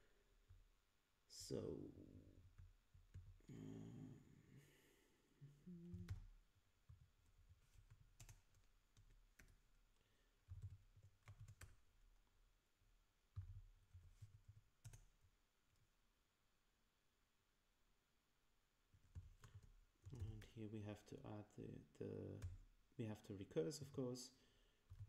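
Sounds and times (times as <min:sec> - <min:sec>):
typing on computer keyboard: 0:06.9 - 0:09.8, 0:10.4 - 0:12.1, 0:13.3 - 0:15.2, 0:19.0 - 0:20.5.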